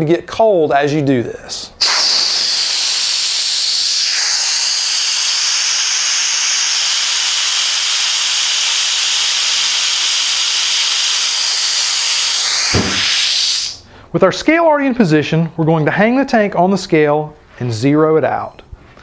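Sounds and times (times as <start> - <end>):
loud high gas hiss: 1.8 - 13.9.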